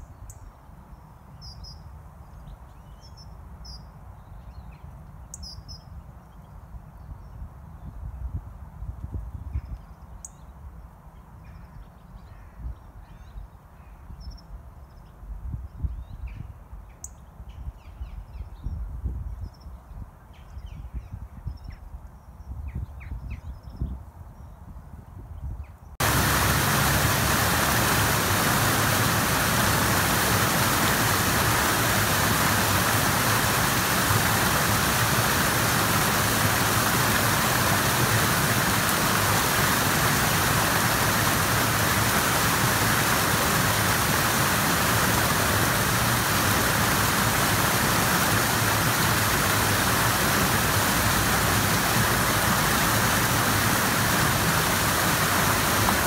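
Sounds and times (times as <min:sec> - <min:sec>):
river water rushing: 0:26.0 - 0:56.0.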